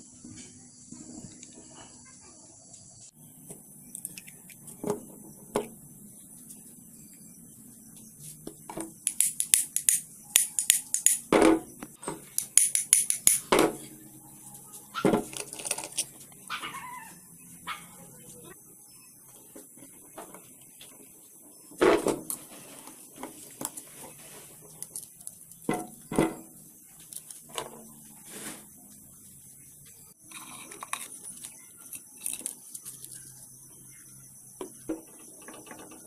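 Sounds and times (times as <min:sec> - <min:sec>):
metal parts clicking and knocking: 0:08.9 - 0:11.4, 0:12.2 - 0:13.8, 0:15.1 - 0:16.3, 0:30.2 - 0:33.3.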